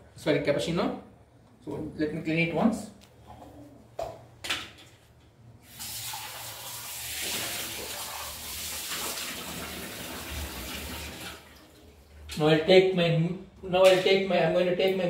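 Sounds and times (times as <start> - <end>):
tap water running: 5.6 - 12.3.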